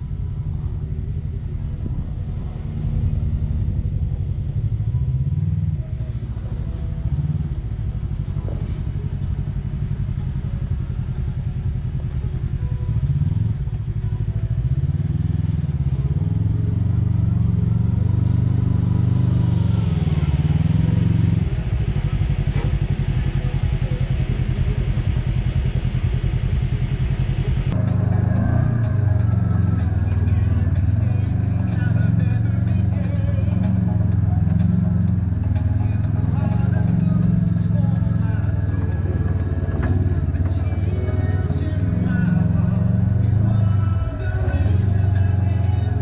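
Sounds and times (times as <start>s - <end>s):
off-road vehicle engine revving: 14.5s - 46.0s.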